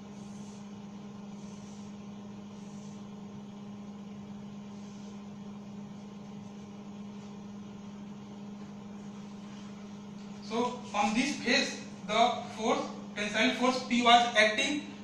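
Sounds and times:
marker swishing on whiteboard: 0:00.0 - 0:03.3, 0:04.6 - 0:05.3
low electrical hum: 0:00.0 - 0:15.0.

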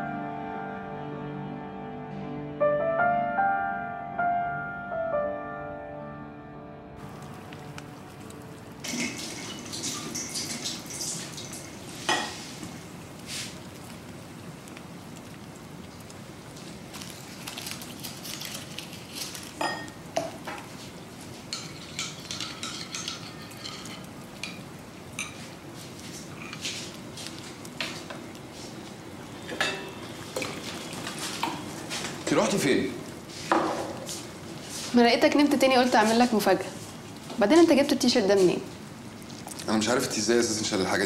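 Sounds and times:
dishes and utensils clinking: 0:12.0 - 0:12.4, 0:19.6 - 0:20.7, 0:21.5 - 0:24.6, 0:25.2 - 0:25.5, 0:29.5 - 0:31.6.

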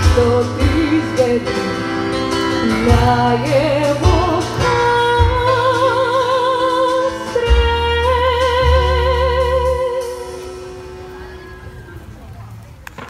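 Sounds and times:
woman singing with vibrato: 0:00.0 - 0:10.8
backing track with deep bass: 0:00.0 - 0:13.0.

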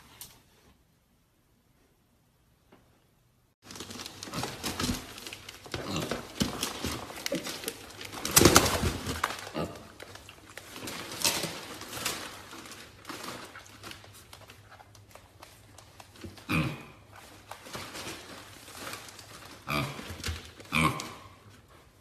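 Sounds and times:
piglets grunting: 0:05.6 - 0:10.3, 0:16.4 - 0:17.3, 0:19.6 - 0:21.4.

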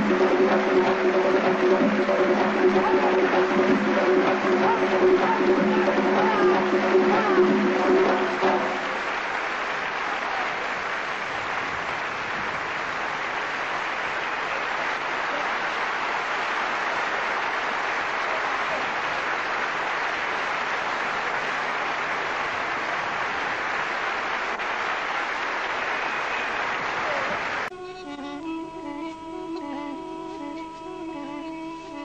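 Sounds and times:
audience applauding: 0:00.0 - 0:32.0.

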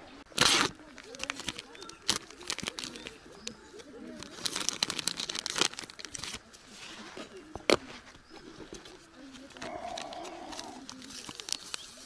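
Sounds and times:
plastic sachet crinkling: 0:00.4 - 0:06.5, 0:08.9 - 0:12.0.

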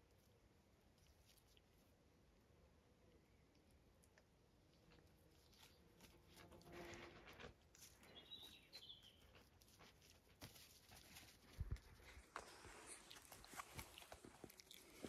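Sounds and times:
puppies rustling over grass: 0:05.1 - 0:15.0
bird chirp: 0:08.0 - 0:09.5.

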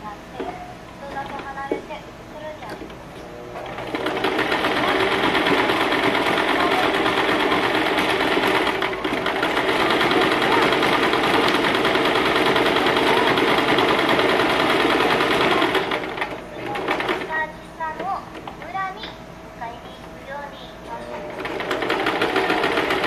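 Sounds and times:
electric sewing machine running: 0:03.5 - 0:17.4, 0:21.1 - 0:23.0.

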